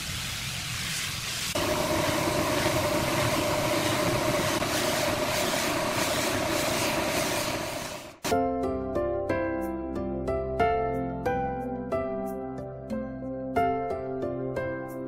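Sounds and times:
spray gun hissing: 0:00.0 - 0:08.3.

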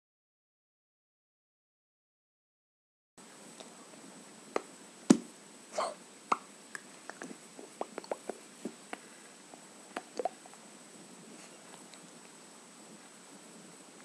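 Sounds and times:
faint high whine: 0:03.2 - 0:14.0
wet mouth clicks and pops: 0:06.3 - 0:09.0, 0:09.9 - 0:10.4.

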